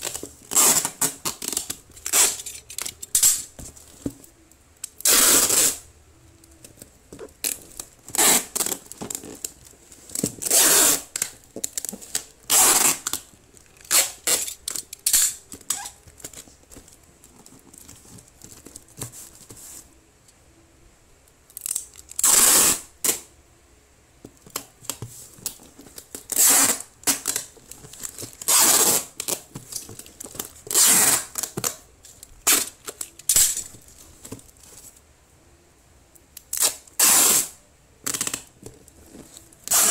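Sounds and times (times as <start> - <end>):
packing tape screeching off roll: 0.0 - 3.5, 4.9 - 5.8, 7.4 - 9.5, 10.2 - 13.2, 13.8 - 16.4, 21.6 - 23.2, 26.1 - 29.8, 30.4 - 31.8, 32.4 - 33.8, 36.5 - 38.5, 39.6 - 39.9.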